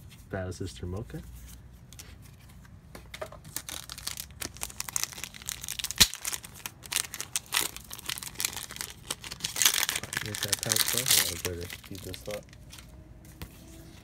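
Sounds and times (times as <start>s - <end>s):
plastic wrapper crinkling and tearing: 3.4s - 12.8s
wrapper snapping: 3.5s - 12.6s.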